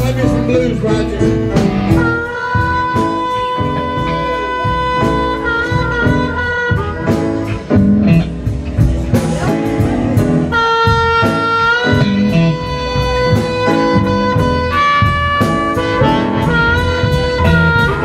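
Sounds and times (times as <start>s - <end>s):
blues harmonica: 0.0s - 18.0s
drums: 0.0s - 18.0s
electric guitar: 0.0s - 18.0s.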